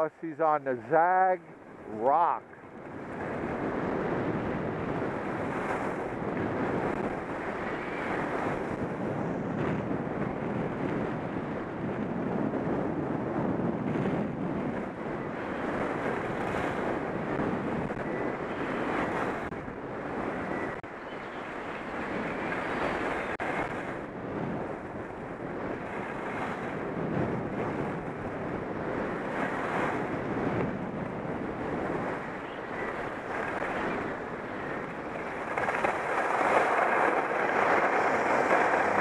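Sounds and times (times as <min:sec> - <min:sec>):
wind rushing over microphone: 0:00.0 - 0:39.0.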